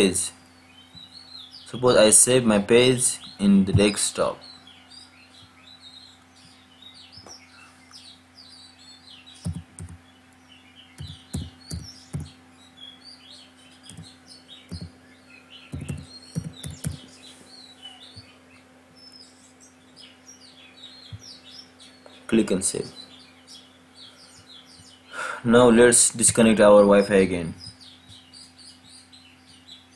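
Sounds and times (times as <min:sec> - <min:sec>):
faint steady hum: 0:00.0 - 0:29.9
small birds chirping: 0:00.0 - 0:29.9
keyboard key presses: 0:09.4 - 0:10.0, 0:11.0 - 0:12.3, 0:14.7 - 0:14.9, 0:15.7 - 0:17.0.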